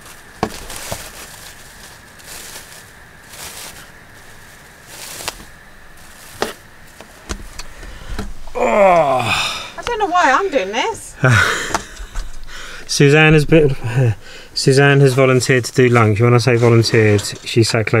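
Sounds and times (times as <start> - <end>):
cling film crinkling: 0.0 - 9.1
sharp crackling clicks: 6.3 - 8.5.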